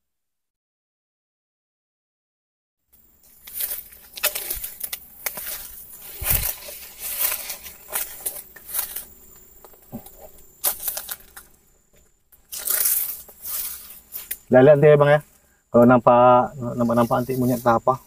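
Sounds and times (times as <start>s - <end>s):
leaves crunching underfoot: 3.2s - 15.4s, 16.6s - 18.0s.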